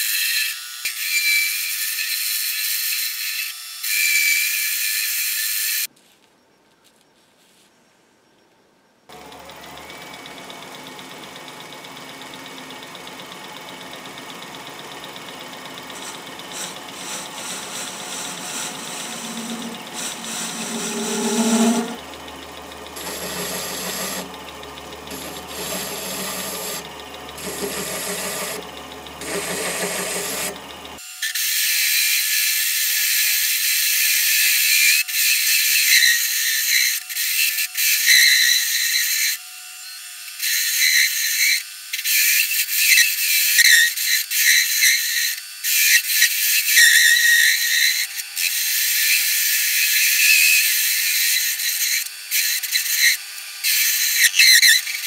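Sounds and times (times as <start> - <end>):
high-pitched clatter: 9.1 - 31.0
lathe running: 9.1 - 31.0
hand file stroking spinning metal: 11.2 - 31.0.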